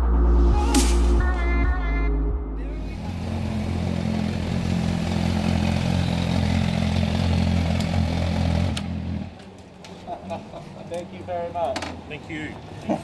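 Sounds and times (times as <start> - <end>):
motorcycle engine idling: 2.8 - 9.4.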